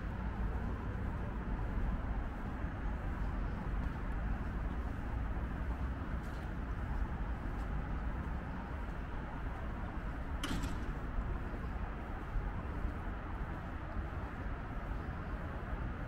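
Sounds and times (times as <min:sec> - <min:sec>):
distant traffic hum: 0:00.0 - 0:16.0.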